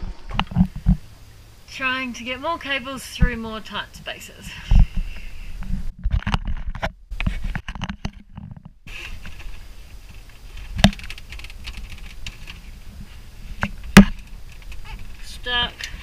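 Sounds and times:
cables clicking and rustling: 5.2 - 16.0.

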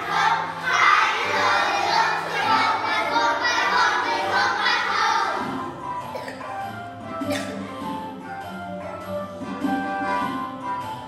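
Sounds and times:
children singing in unison: 0.0 - 6.2
musical accompaniment with bass line: 0.0 - 11.0.

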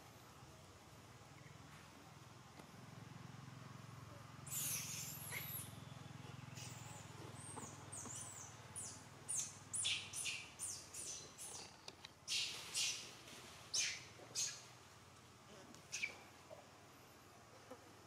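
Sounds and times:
faint low hum: 0.0 - 18.0
birds chirping: 4.4 - 13.1, 13.7 - 14.7, 15.9 - 16.3.

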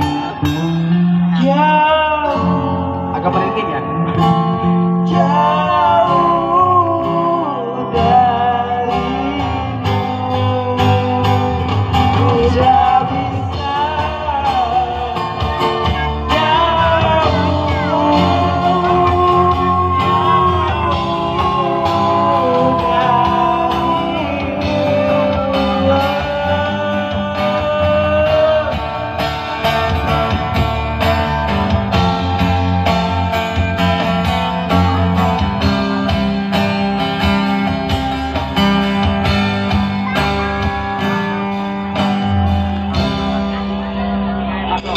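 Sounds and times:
bass guitar: 0.0 - 44.9
guitar: 0.0 - 44.9
woman singing lead: 5.0 - 30.1.

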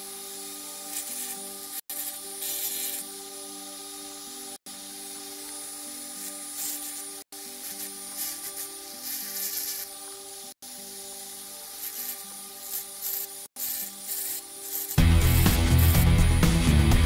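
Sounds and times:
rotary tool whine: 0.0 - 16.6
burr grinding wood: 11.8 - 16.8
loud music: 15.0 - 17.0.

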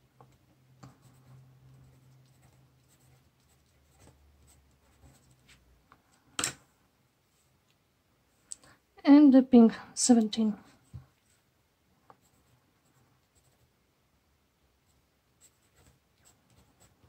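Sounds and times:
pencil scratching on paper: 0.8 - 5.6, 14.9 - 17.0.

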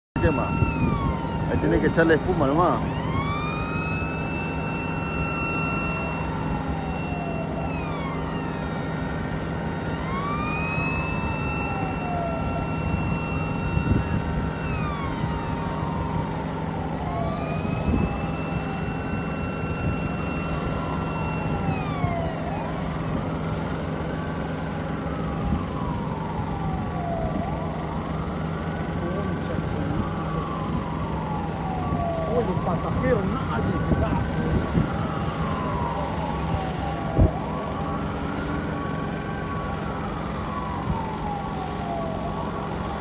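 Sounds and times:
emergency sirens wailing: 0.2 - 43.0.

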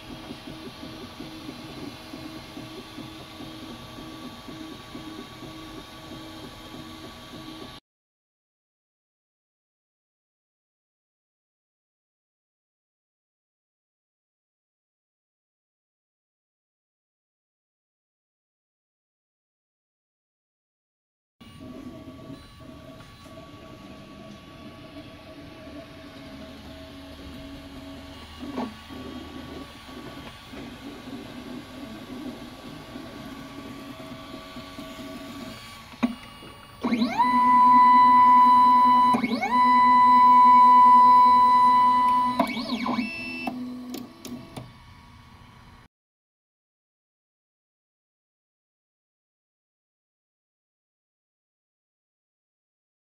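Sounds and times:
printer motors whining: 0.0 - 7.8, 21.4 - 45.9.

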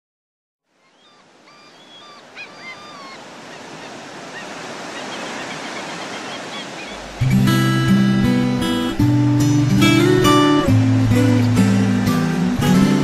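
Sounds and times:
bird calls: 0.8 - 7.2
surf washing on a beach: 0.8 - 13.0.

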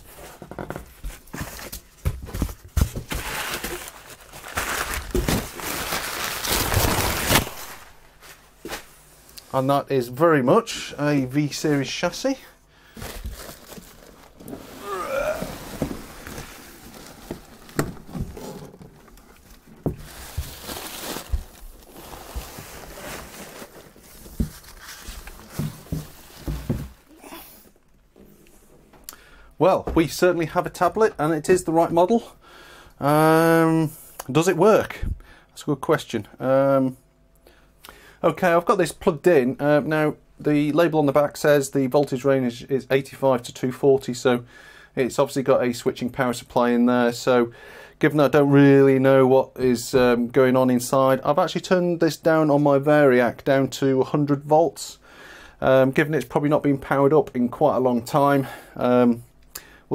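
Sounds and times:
packing paper rustling: 0.1 - 8.9, 12.9 - 27.1.

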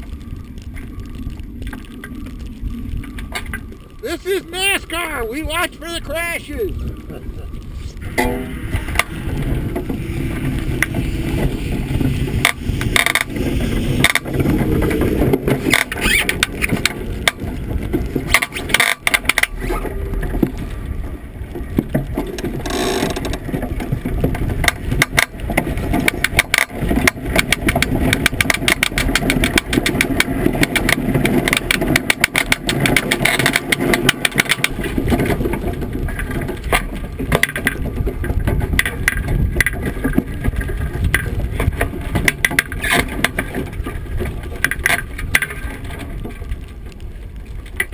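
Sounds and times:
iceboat runners scraping rumble: 0.0 - 47.9.

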